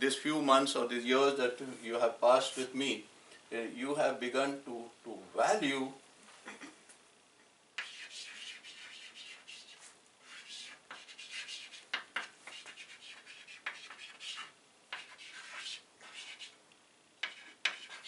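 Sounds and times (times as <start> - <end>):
chalk scratching on blackboard: 7.8 - 16.6, 17.2 - 18.0
chalk ticking against board: 7.8 - 16.6, 17.2 - 18.0.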